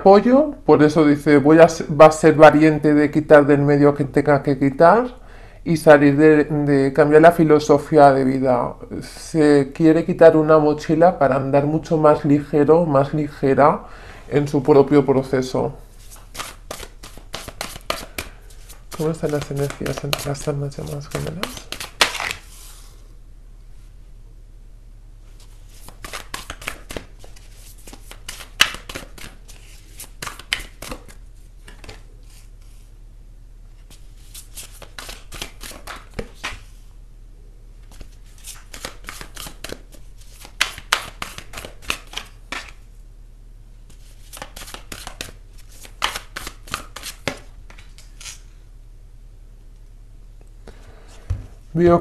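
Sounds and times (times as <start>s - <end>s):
low steady hum: 0.0s - 52.0s
cards being shuffled: 16.0s - 22.9s, 25.3s - 32.9s, 33.8s - 36.8s, 37.8s - 42.8s, 43.9s - 48.4s.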